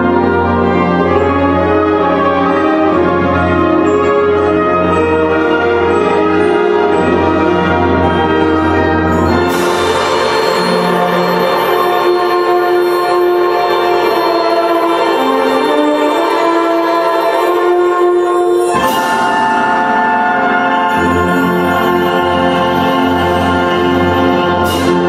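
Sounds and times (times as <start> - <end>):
brass band playing chords: 0.0 - 25.0
cymbal crash: 9.2 - 12.1.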